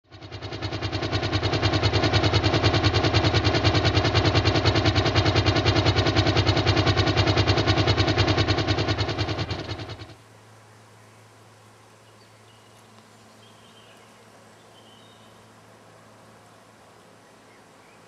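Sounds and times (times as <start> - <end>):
small engine idling: 0.0 - 10.2.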